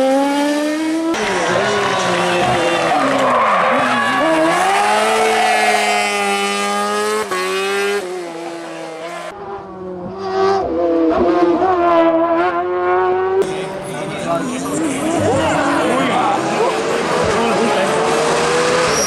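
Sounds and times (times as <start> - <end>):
race car engines at high revs: 0.0 - 19.0
tyres skidding: 1.1 - 9.3, 13.4 - 19.0.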